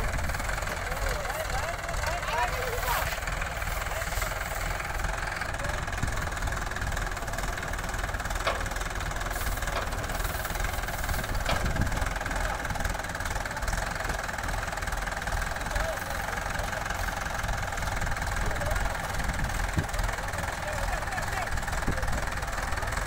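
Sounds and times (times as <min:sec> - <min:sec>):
tractor diesel engines running: 0:00.0 - 0:23.0.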